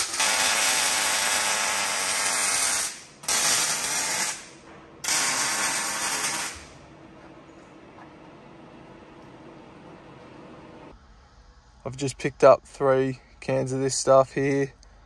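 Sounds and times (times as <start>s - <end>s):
welder arc crackling sizzle: 0.0s - 6.8s.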